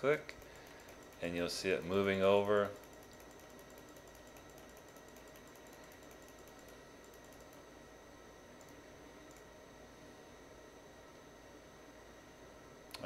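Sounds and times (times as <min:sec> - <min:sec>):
computer mouse clicks: 0:00.3 - 0:01.3, 0:02.4 - 0:07.6, 0:08.6 - 0:09.5.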